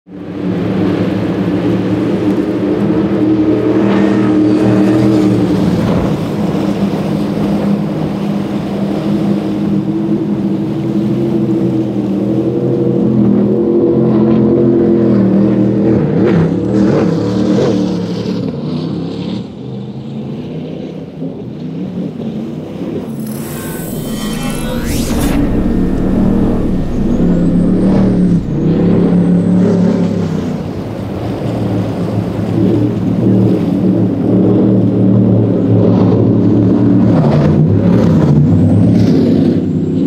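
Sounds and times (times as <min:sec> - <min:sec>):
powerboat engines droning: 0:23.1 - 0:35.8.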